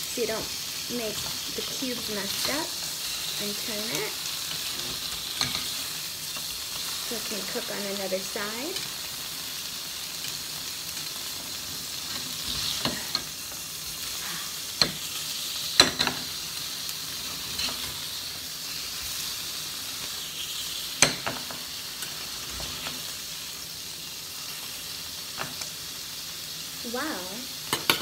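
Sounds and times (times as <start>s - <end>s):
tofu sizzling in frying pan: 0.0s - 28.0s
metal spatula scraping a pan: 17.3s - 18.0s.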